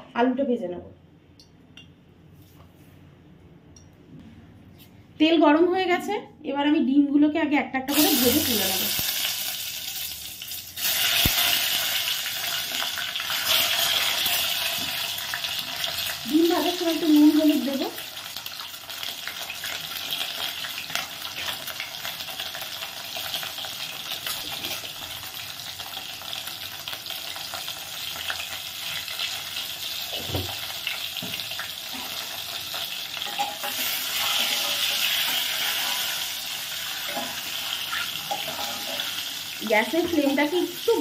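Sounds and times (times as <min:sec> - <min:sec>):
eggs sizzling in hot oil: 0:07.9 - 0:41.0.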